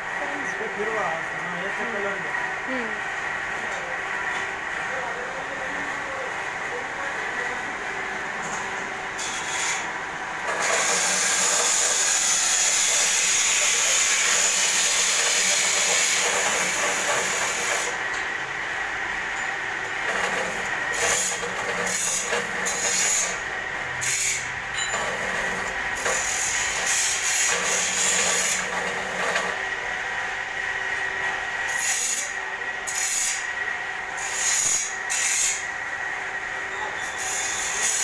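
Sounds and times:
sugarcane rasping through blades: 0:10.5 - 0:18.0, 0:20.1 - 0:23.4, 0:24.0 - 0:29.6.

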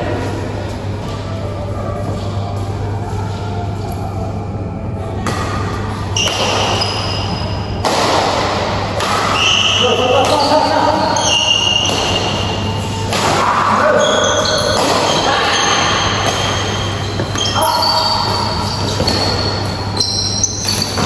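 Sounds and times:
racket striking shuttlecock: 0:06.2 - 0:06.8, 0:07.8 - 0:10.6, 0:11.5 - 0:13.5.

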